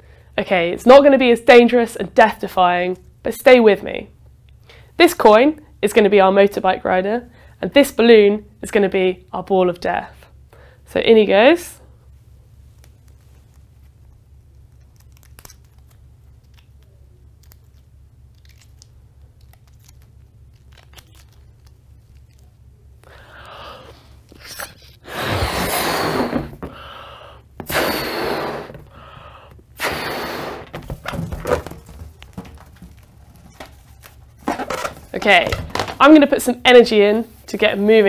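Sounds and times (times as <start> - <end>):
quick in-breaths: 23.0 - 24.2, 25.0 - 30.8
person blowing up balloon: 23.5 - 30.8.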